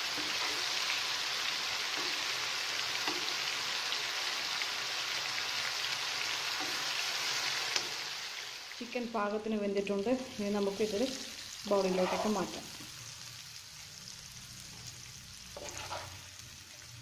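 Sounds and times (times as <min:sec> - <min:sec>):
chicken sizzling in a pan: 0:00.0 - 0:17.0.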